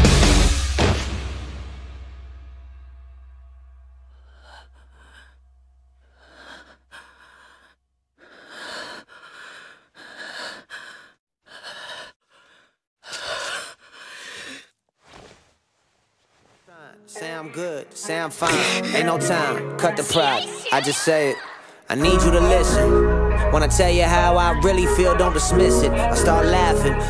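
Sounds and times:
rock song chord: 0.0s - 4.0s
character breathing hard: 6.0s - 14.8s, 18.5s - 19.1s.

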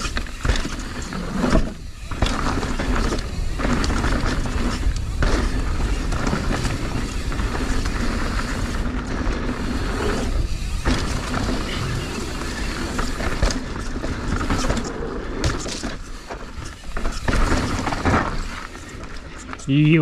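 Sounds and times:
bike tyre and drivetrain noise: 0.0s - 20.0s.

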